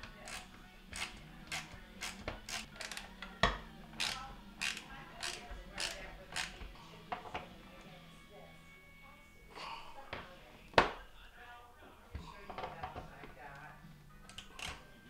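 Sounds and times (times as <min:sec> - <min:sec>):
hand driver clicking: 0:00.0 - 0:06.7, 0:14.3 - 0:14.9.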